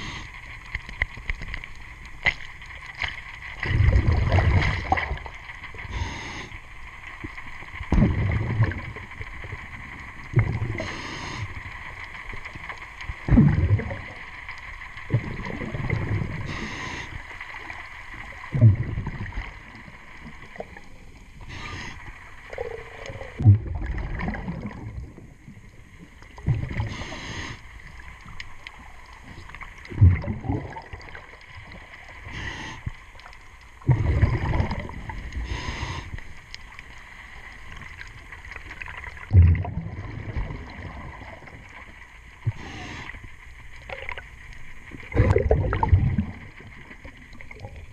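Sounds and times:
regulator inhale hiss: 0:00.0 - 0:00.5, 0:05.8 - 0:06.8, 0:10.7 - 0:11.7, 0:16.4 - 0:17.5, 0:21.4 - 0:22.4, 0:26.8 - 0:27.8, 0:32.2 - 0:33.2, 0:35.4 - 0:36.5, 0:42.4 - 0:43.4
faint steady hum: 0:00.0 - 0:47.9
exhaust bubbles rumbling: 0:03.6 - 0:05.4, 0:07.8 - 0:10.9, 0:13.2 - 0:14.2, 0:15.0 - 0:16.6, 0:18.5 - 0:20.0, 0:22.6 - 0:27.0, 0:29.8 - 0:31.9, 0:33.8 - 0:35.6, 0:38.8 - 0:41.7, 0:44.9 - 0:47.9.

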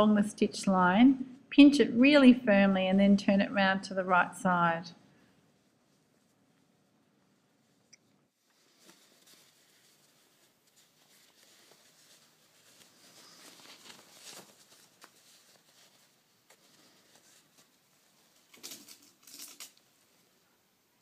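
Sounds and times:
fabric rustling: 0:05.1 - 0:21.0.

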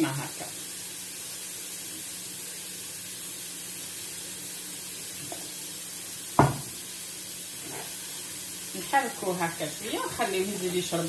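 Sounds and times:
steady hiss: 0:00.0 - 0:11.0
utensil knocking against bowl: 0:06.4 - 0:06.7.

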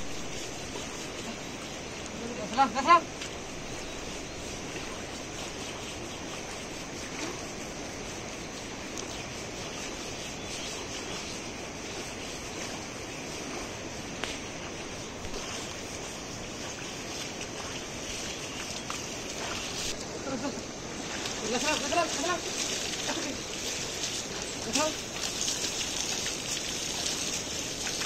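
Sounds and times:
river water rushing: 0:12.5 - 0:28.0.

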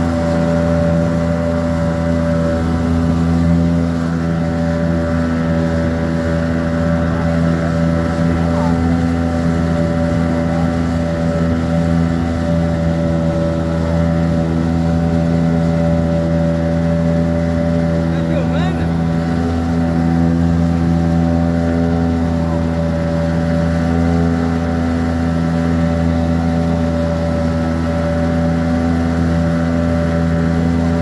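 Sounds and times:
motorboat engine running: 0:00.0 - 0:31.0
rushing boat wake: 0:00.0 - 0:31.0
wind: 0:00.0 - 0:31.0.

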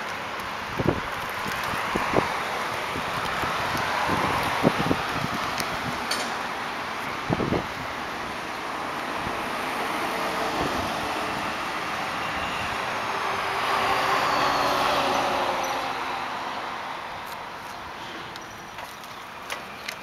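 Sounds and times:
road traffic: 0:00.0 - 0:20.0
vehicle passing: 0:08.7 - 0:18.4.

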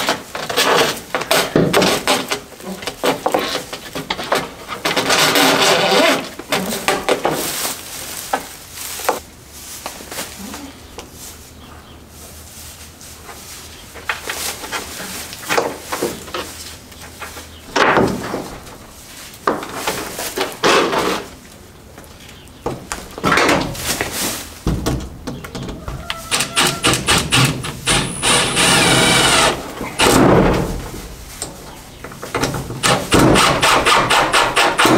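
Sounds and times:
knocks and bangs on wood: 0:17.7 - 0:18.7, 0:24.6 - 0:28.7, 0:30.0 - 0:31.1, 0:32.2 - 0:34.9.

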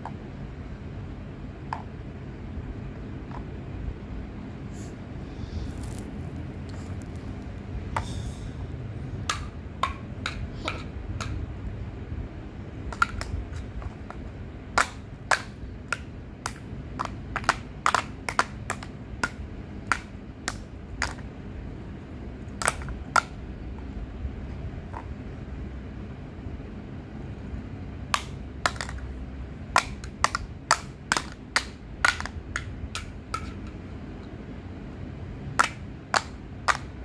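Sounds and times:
plastic toy blocks clicking: 0:14.8 - 0:21.2, 0:28.2 - 0:29.0, 0:29.8 - 0:33.7.

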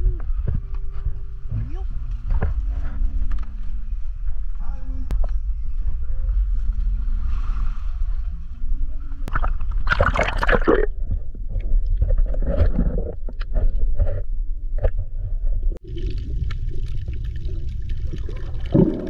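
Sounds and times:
muffled churning water: 0:07.6 - 0:19.0
water sloshing and splashing: 0:09.3 - 0:14.2, 0:15.8 - 0:19.0.

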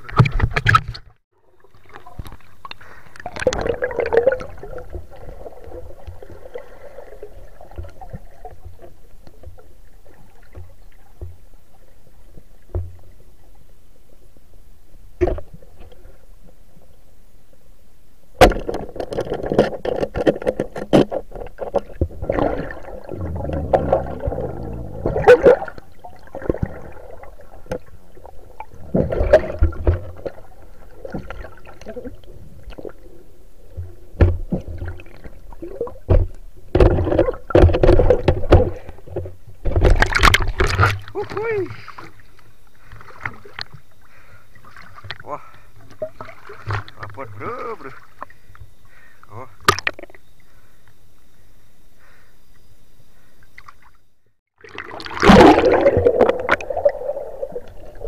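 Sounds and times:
underwater water gurgling: 0:00.0 - 0:14.3, 0:21.3 - 0:42.0, 0:54.6 - 0:58.0
bubbling: 0:01.7 - 0:08.9, 0:21.5 - 0:33.0, 0:54.6 - 0:58.0.

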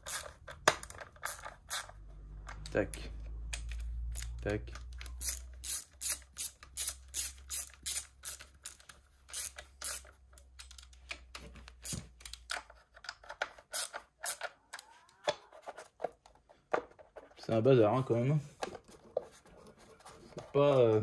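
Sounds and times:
ratchet wrench clicking: 0:03.5 - 0:10.8.

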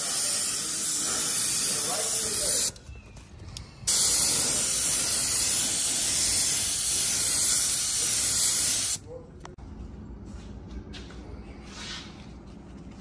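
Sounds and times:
spray gun hissing: 0:00.0 - 0:02.7, 0:03.9 - 0:09.0.

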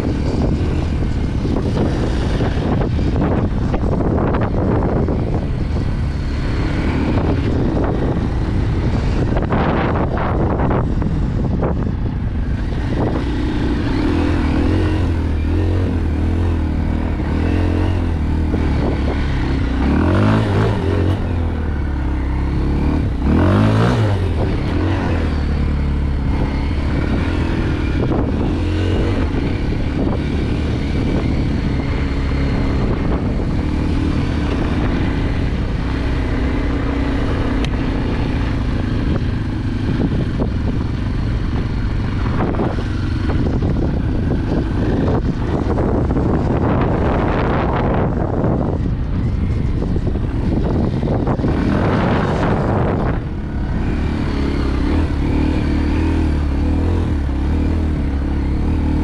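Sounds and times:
dirt bike engine revving: 0:12.5 - 0:48.6, 0:50.4 - 0:59.0.

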